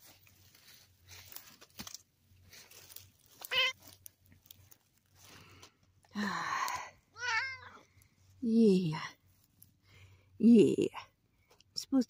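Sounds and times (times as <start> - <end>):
cat meowing: 3.4 - 3.8, 7.2 - 7.8.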